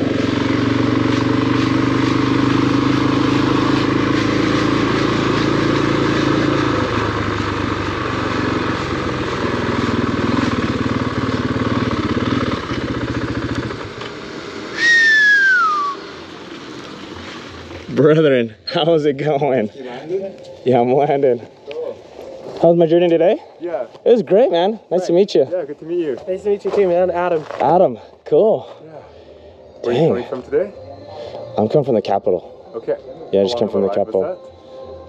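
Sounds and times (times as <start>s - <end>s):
motorcycle engine running: 0.0s - 17.8s
loud high falling call: 14.7s - 16.0s.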